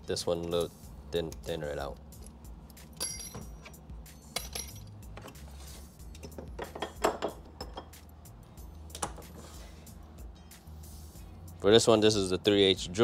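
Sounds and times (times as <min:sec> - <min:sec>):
metal lathe parts clinking: 0:03.0 - 0:05.5, 0:06.1 - 0:08.0.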